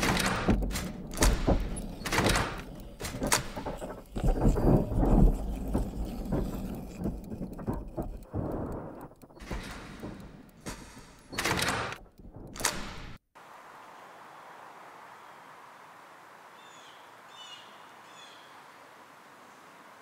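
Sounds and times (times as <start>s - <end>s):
machine knocks and clunks: 0.0s - 13.2s.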